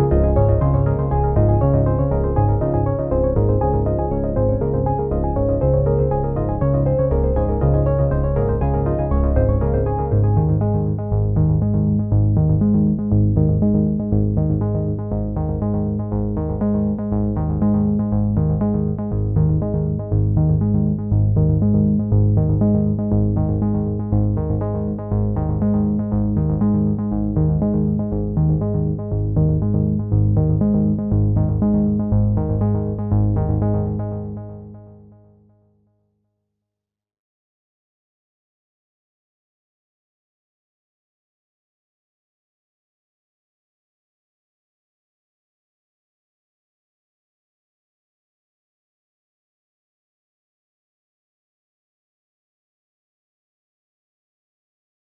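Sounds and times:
electronic music with synthesizer: 0.0s - 34.7s.

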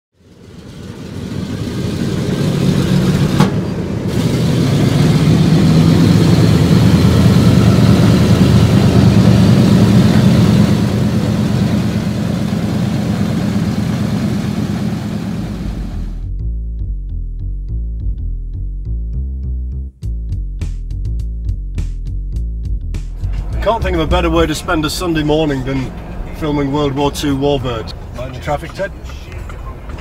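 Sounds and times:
loud engine rumble: 0.2s - 16.5s, 22.9s - 30.0s
falling tone: 1.8s - 12.0s.

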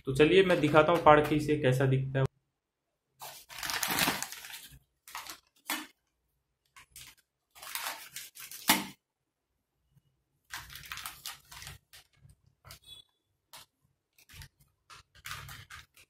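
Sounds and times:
plastic pouch crinkling: 3.2s - 6.0s, 6.7s - 8.8s, 10.5s - 12.8s, 13.5s - 16.0s.

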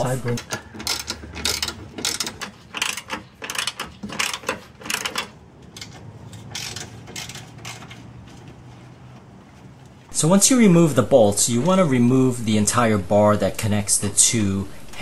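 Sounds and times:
ratchet wrench clicking: 0.4s - 8.0s.

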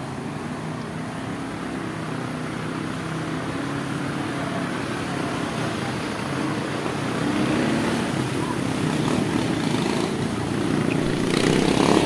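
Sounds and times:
outdoor street noise: 0.0s - 12.0s
low engine hum: 10.2s - 12.0s.

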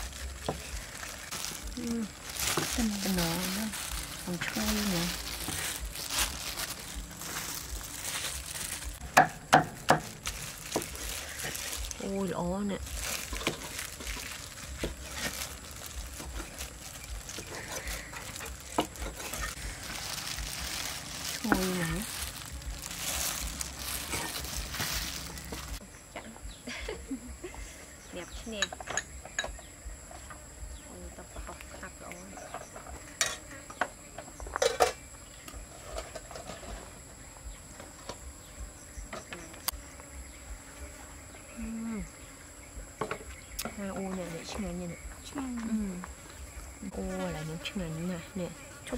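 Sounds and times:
high insect drone: 0.0s - 48.9s
cleaver chopping on wooden block: 9.1s - 10.2s.

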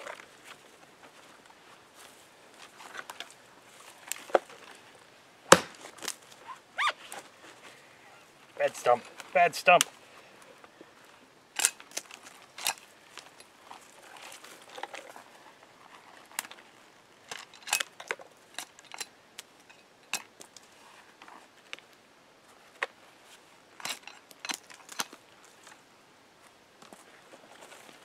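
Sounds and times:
blade chopping branches: 5.5s - 6.2s.

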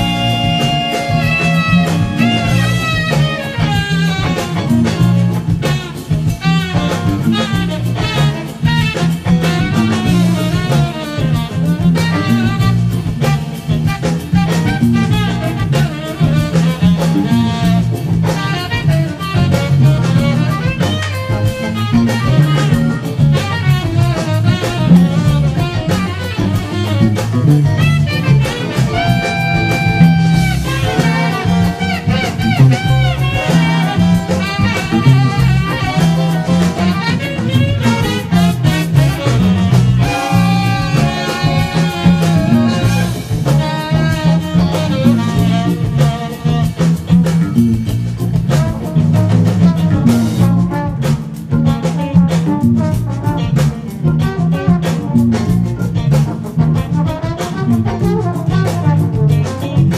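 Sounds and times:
electric bass line: 0.0s - 59.9s
funk jazz band: 0.0s - 59.9s
saxophone phrases: 0.0s - 59.9s.

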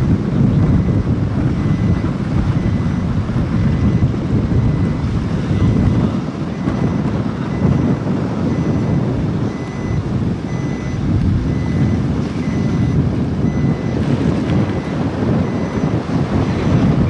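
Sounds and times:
moving vehicle rumble: 0.0s - 17.0s
wind buffeting microphone: 0.0s - 17.0s
faint high beep: 8.5s - 8.9s, 9.5s - 14.0s, 14.7s - 16.7s.

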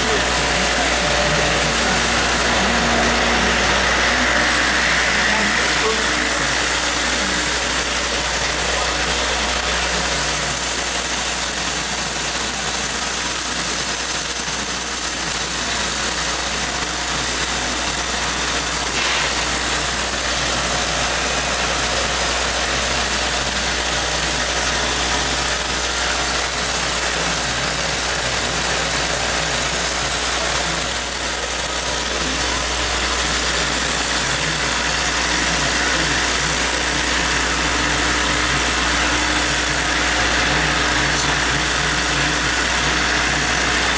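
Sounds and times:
feeder drive unit humming: 0.0s - 43.9s.

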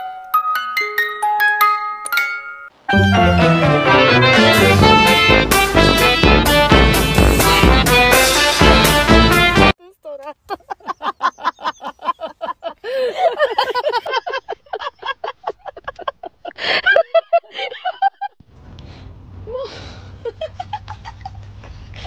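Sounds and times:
person laughing hard: 10.4s - 18.4s, 19.6s - 21.6s.

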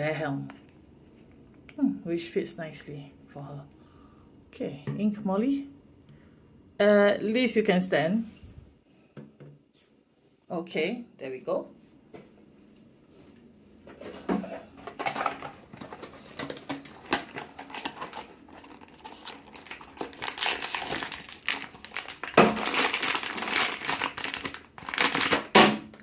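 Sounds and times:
foil pouch crinkling: 15.0s - 26.0s.

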